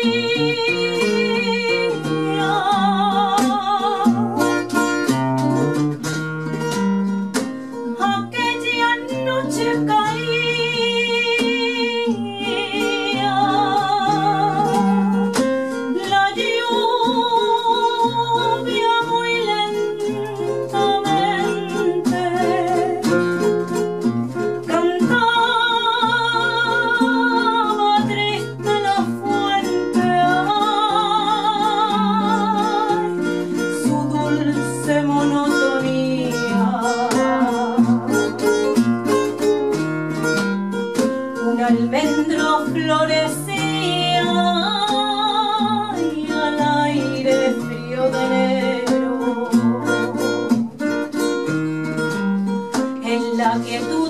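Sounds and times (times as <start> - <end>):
flamenco guitar: 0.0 - 54.0
woman singing flamenco: 0.0 - 54.0.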